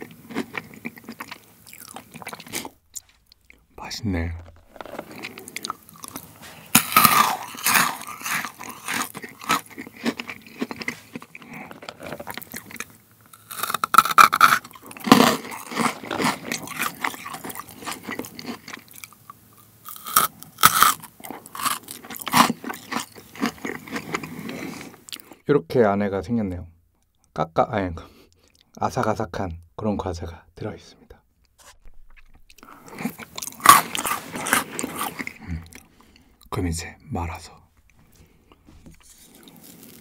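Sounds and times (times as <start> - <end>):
crunching chocolate sweets: 0.0 - 25.4, 32.2 - 36.8, 38.1 - 40.0.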